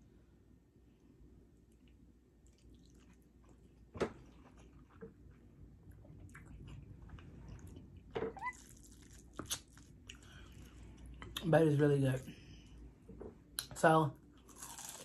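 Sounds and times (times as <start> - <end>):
wet chewing: 1.7 - 11.5
lip smacks: 9.4 - 10.2.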